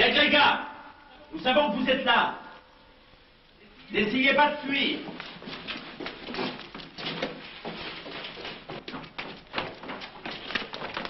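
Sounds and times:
hurried footsteps on stone floor: 4.8s - 11.0s.

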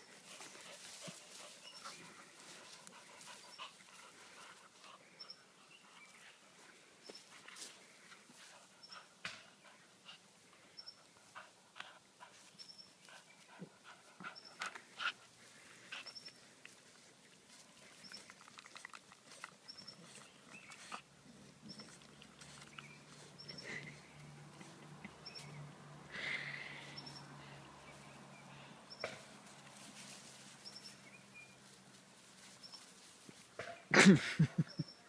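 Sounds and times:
dogs panting: 0.1s - 30.0s
scuffling and rustling: 29.2s - 33.6s.

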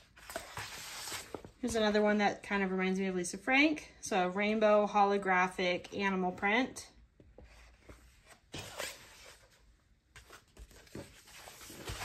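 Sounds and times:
paper sheets rustling and crackling: 10.2s - 12.0s.

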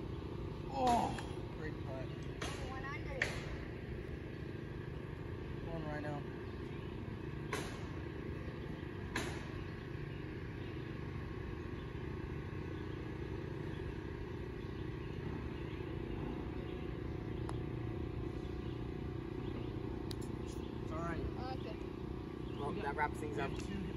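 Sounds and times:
low outdoor rumble: 0.0s - 23.9s
putter striking golf ball: 7.4s - 8.0s, 9.0s - 9.7s, 17.4s - 17.8s.

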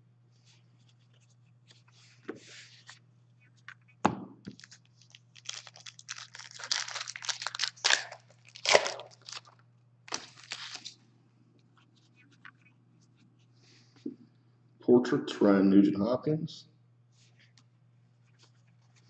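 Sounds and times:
wrapper crinkling: 4.5s - 11.0s.

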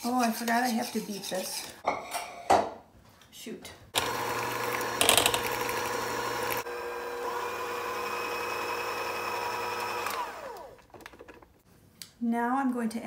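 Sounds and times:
electric hand mixer running: 4.0s - 10.8s.

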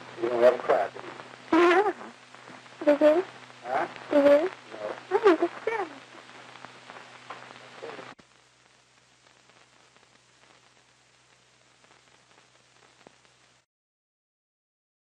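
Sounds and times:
low steady hum: 0.0s - 13.6s
faint crackle: 0.0s - 13.7s
steady hiss: 0.0s - 13.7s
voice trailing off: 2.8s - 6.1s.

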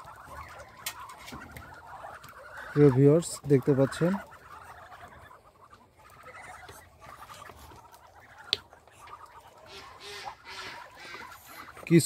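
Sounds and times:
ducks calling: 0.0s - 12.0s.

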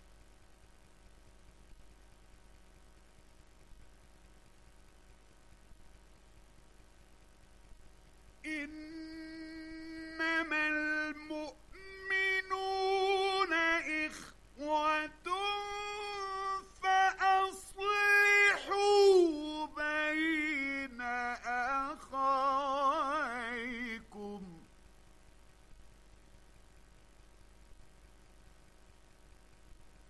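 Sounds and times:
man chanting melodically: 8.4s - 24.7s.

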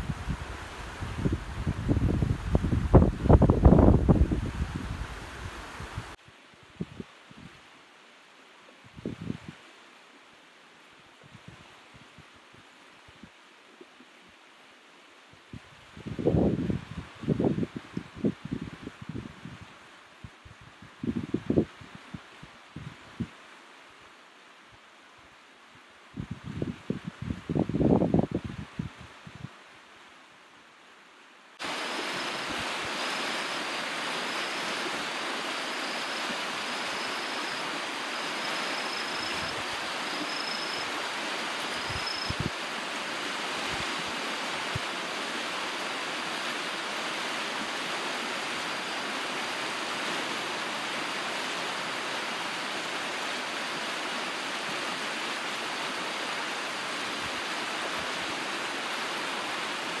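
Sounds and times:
flooded stream rushing: 0.0s - 6.2s, 31.6s - 60.0s.

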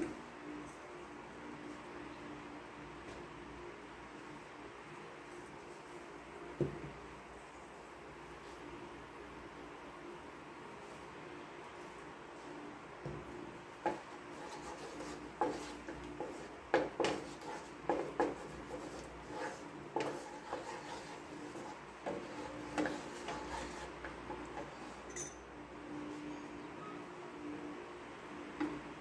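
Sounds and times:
spatula stirring thick sauce: 13.8s - 25.1s
wooden spatula knocking on wok: 15.4s - 18.5s.

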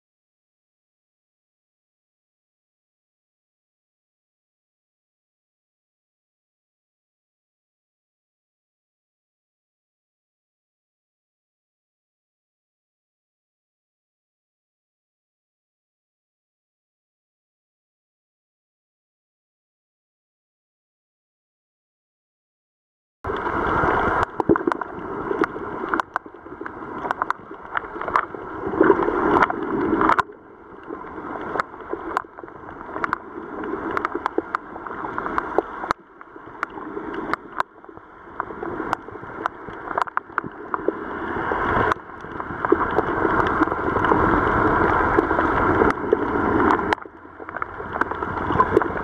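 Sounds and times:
underwater rushing: 23.3s - 49.0s.

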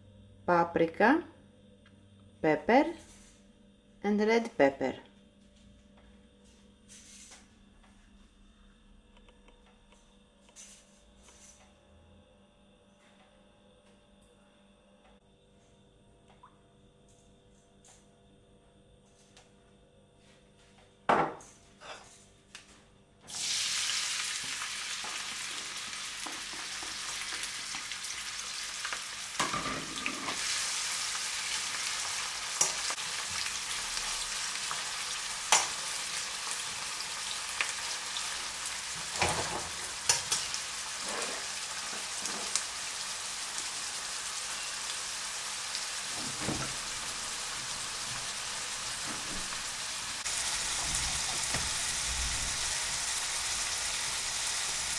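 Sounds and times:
onion sizzling in oil: 23.3s - 54.9s.

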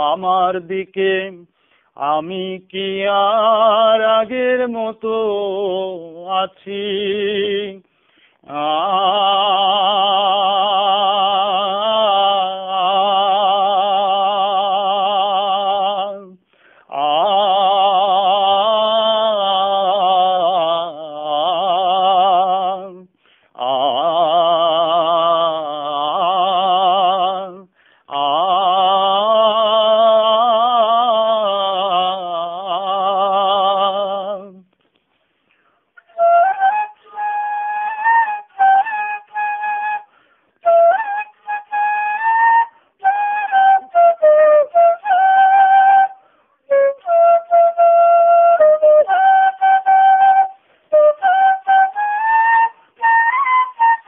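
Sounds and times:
man singing with vibrato: 0.0s - 34.8s, 36.0s - 54.0s
flute melody: 36.0s - 54.0s.

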